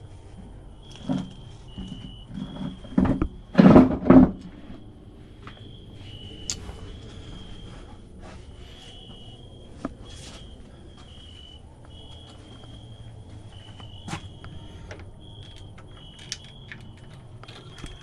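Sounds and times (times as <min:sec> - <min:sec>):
cricket chirping: 0:00.0 - 0:18.0
faint clicks and knocks: 0:11.8 - 0:18.0.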